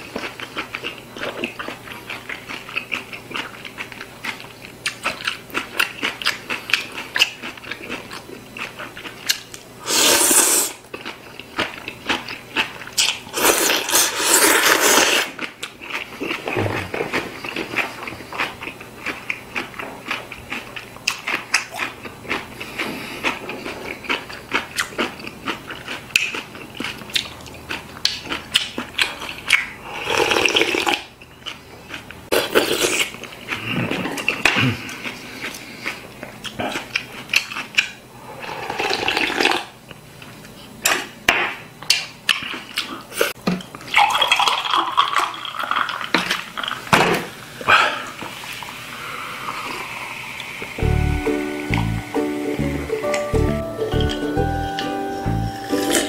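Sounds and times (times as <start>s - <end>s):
chewing: 0.0s - 9.6s, 10.2s - 39.6s, 41.8s - 43.3s
slurping noodles and broth: 9.8s - 10.8s, 13.3s - 15.4s, 29.9s - 31.1s, 38.2s - 39.7s, 47.7s - 50.8s.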